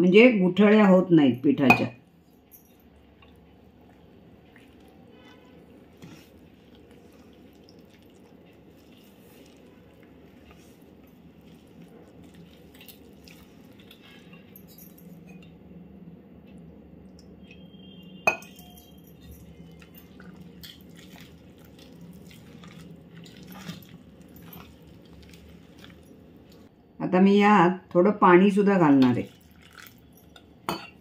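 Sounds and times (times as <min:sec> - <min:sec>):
ladle stirring thick batter: 0:02.9 - 0:14.6, 0:19.1 - 0:26.7
ladle clinking against bowl: 0:18.2 - 0:19.3.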